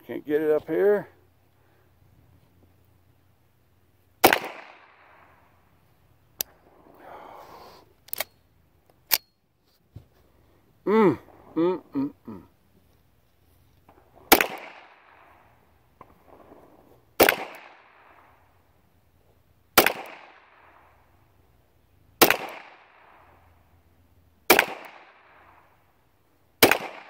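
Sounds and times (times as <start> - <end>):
pistol shots with echo: 4.2 - 5.6, 13.9 - 16.6, 17.2 - 18.6, 19.7 - 21.3, 22.2 - 23.5, 24.5 - 25.8, 26.6 - 27.0.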